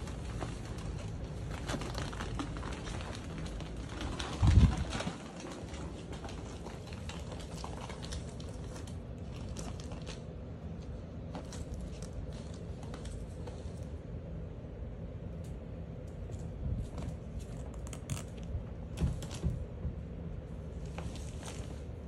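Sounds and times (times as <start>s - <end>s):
ferrets scrambling in plastic tube: 0.0s - 10.3s.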